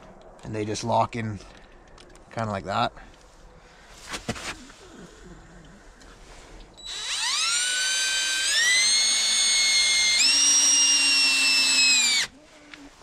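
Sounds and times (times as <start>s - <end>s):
cordless drill motor whining: 6.8s - 12.3s.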